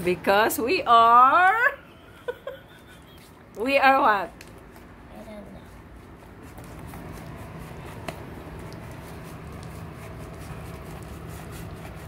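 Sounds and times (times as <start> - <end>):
low steady hum: 0.0 - 12.0
slime squelching in a tub: 3.1 - 12.0.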